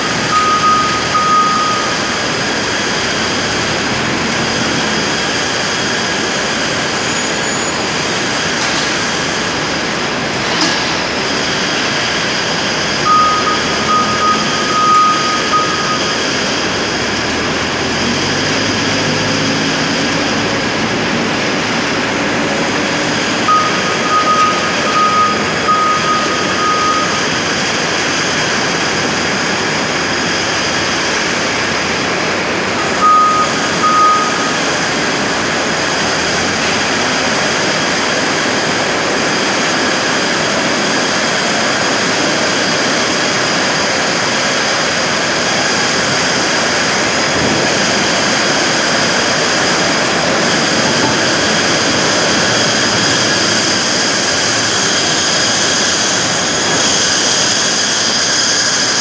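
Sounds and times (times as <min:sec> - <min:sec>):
short high beeps: 0:00.0 - 0:02.5, 0:13.0 - 0:16.8, 0:23.4 - 0:27.6, 0:32.8 - 0:34.8
factory machinery din: 0:00.0 - 0:59.0
high machine whine: 0:00.0 - 0:59.0.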